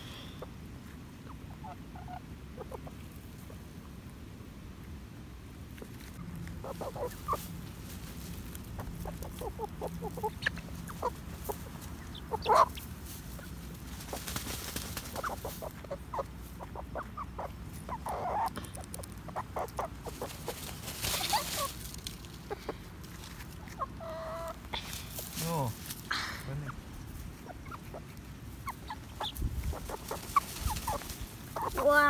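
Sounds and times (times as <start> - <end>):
chickens clucking softly: 0.3 - 4.2, 5.7 - 24.7, 26.5 - 32.0
feathers rustling: 7.1 - 9.5, 10.1 - 15.9, 20.0 - 23.7, 29.0 - 32.0.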